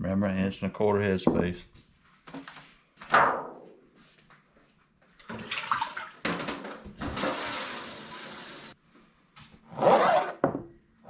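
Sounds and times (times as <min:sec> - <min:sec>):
water running: 0:05.2 - 0:08.8.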